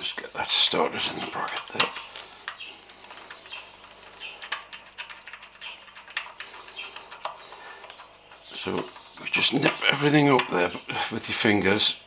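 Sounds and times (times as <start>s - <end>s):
metal parts knocking lightly: 0.8s - 10.9s
metallic clicks of bolt threading: 1.2s - 10.7s.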